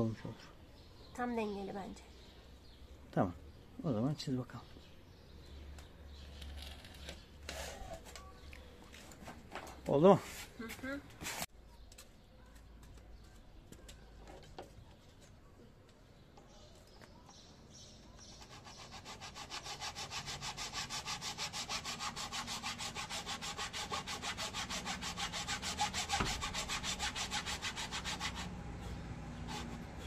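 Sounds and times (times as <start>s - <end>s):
hacksaw cutting floor plank: 18.9s - 28.5s.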